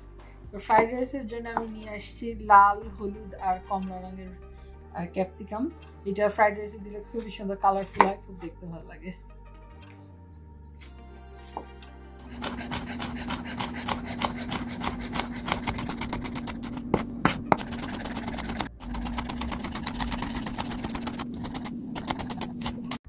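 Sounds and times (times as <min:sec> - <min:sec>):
knife chopping on wooden board: 0:01.6 - 0:01.8, 0:07.8 - 0:08.2, 0:12.3 - 0:23.0.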